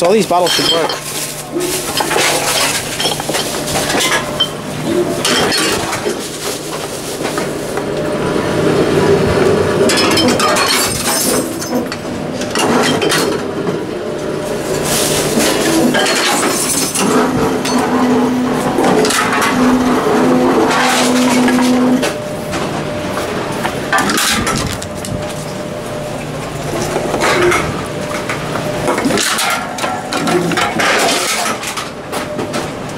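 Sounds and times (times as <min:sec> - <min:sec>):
steady machine hum: 0:00.0 - 0:32.9
glass bottles clinking and breaking: 0:00.2 - 0:04.5, 0:05.2 - 0:06.2, 0:09.9 - 0:12.0, 0:15.8 - 0:17.8, 0:29.0 - 0:31.8.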